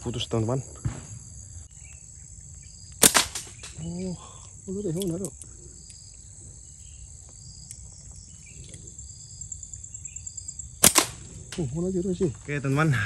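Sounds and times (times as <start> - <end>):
high insect drone: 0.0 - 13.0
slingshot cracks: 3.0 - 3.9, 10.8 - 11.6.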